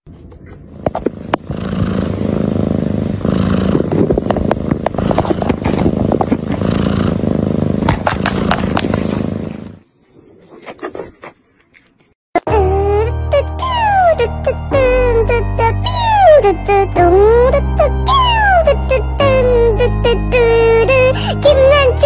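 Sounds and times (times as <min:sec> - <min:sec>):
cat purring: 0:00.9 - 0:09.8.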